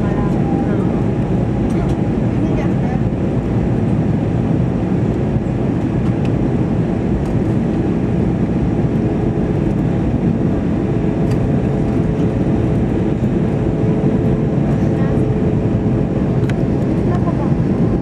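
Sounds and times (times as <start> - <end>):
jet engines droning: 0.0 - 18.0.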